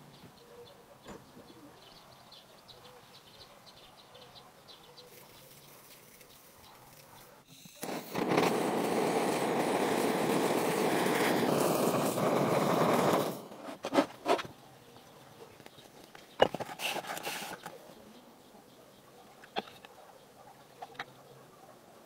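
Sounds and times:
butane torch hissing: 7.5s - 13.8s, 16.7s - 17.7s.

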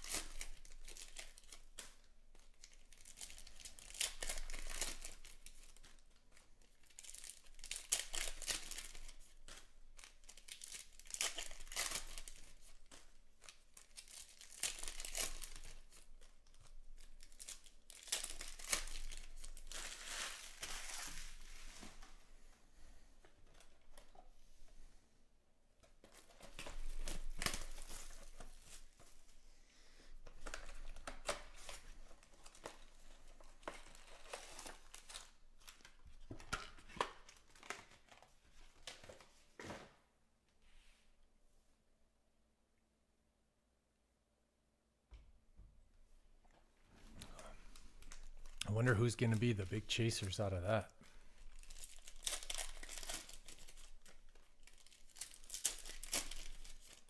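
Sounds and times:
foil wrappers crinkling and tearing: 0.0s - 22.0s, 26.0s - 29.1s, 30.2s - 39.3s, 47.2s - 57.0s.

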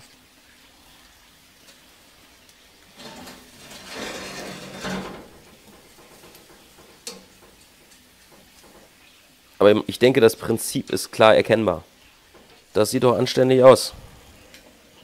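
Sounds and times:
steak sizzling: 0.0s - 15.0s
metal grill grate scraping: 2.8s - 8.9s.

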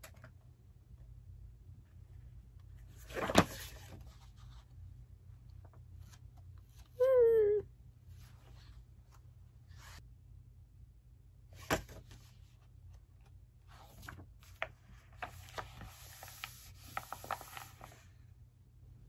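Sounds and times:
book pages rustling: 2.7s - 4.8s, 13.2s - 18.2s
book pressed flat crinkling: 13.8s - 18.1s.

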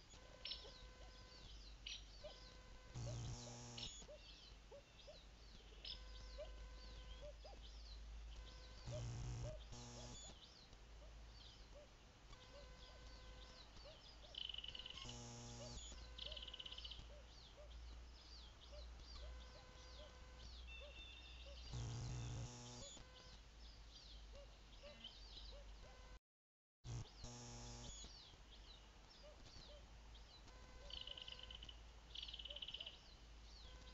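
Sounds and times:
high chirps chorus: 0.0s - 4.2s, 8.4s - 10.4s, 12.3s - 17.7s, 19.1s - 23.4s
camera mechanism buzz: 3.0s - 4.1s, 8.8s - 10.4s, 14.8s - 16.7s, 21.7s - 23.3s, 26.9s - 28.1s.

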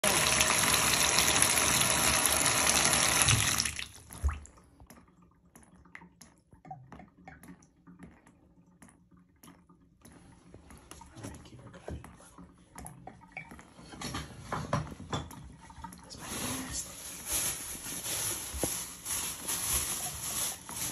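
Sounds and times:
faucet running into tub: 0.0s - 4.7s
water dripping and trickling: 0.0s - 20.9s.

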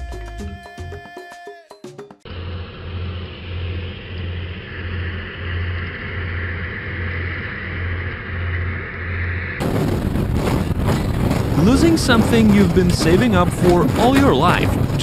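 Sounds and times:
speedboat engine drone: 2.3s - 15.0s
water and wind rush: 5.6s - 15.0s
hull scraping rocky shallows: 9.6s - 15.0s.

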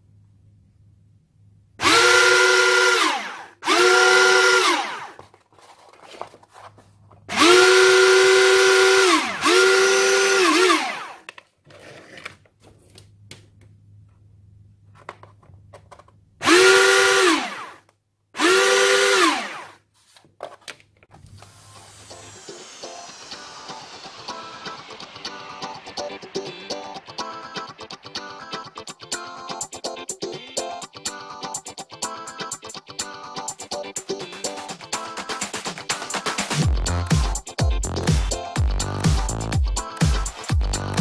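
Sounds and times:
electric motors whining: 1.8s - 5.2s, 7.3s - 11.2s, 16.4s - 17.8s, 18.4s - 19.8s.

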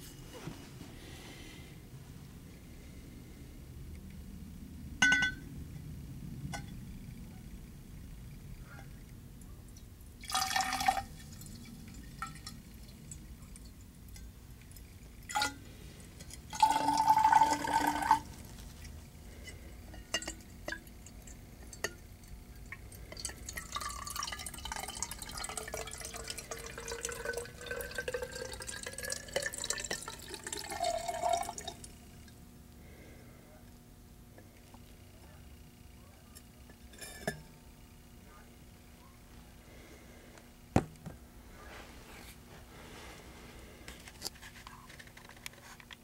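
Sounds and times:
light glass clinks: 5.0s - 5.5s
liquid pouring into glass: 10.2s - 13.8s, 16.2s - 18.4s, 20.0s - 32.0s.

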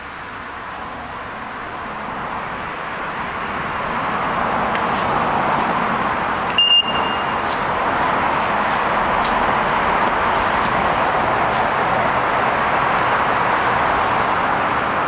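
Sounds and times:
vehicle approaching: 0.0s - 15.0s
short high beep: 6.6s - 7.4s.

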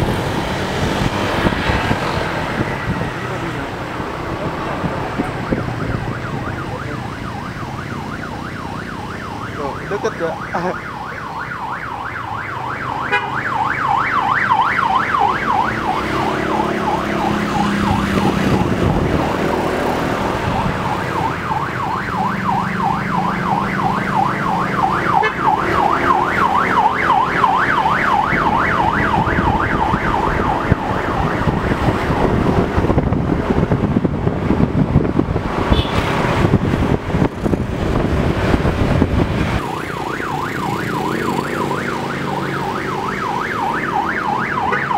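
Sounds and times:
passing vans and motorbikes: 0.0s - 44.9s
siren in fast yelp: 5.2s - 19.1s, 20.0s - 32.7s, 39.6s - 44.9s.

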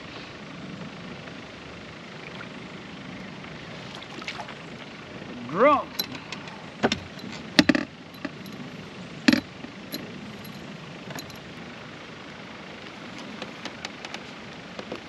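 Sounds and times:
fishing tackle clicks and knocks: 6.8s - 8.6s, 9.3s - 11.4s.

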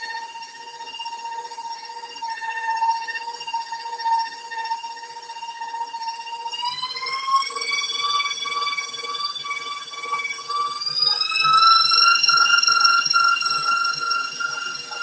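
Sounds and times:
stand mixer motor whining: 11.0s - 15.0s.

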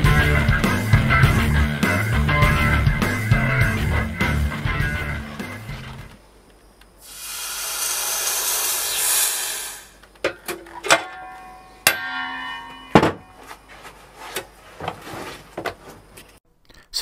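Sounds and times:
steady hiss: 6.9s - 10.2s
metal tools clinking on moulds: 10.2s - 13.6s.

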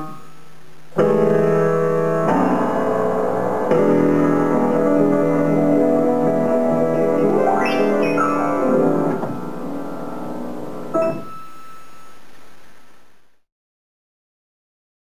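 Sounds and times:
grand piano chords: 1.0s - 11.6s.

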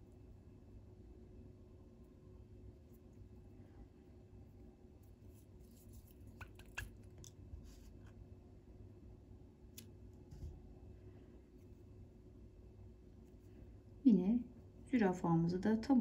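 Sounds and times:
thread and fabric rustling: 4.6s - 8.2s.

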